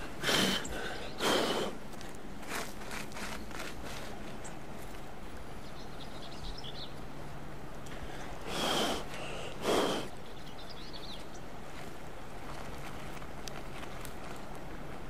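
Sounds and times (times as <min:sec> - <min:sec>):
person blowing puffs of breath: 0:00.0 - 0:01.8, 0:08.0 - 0:10.1.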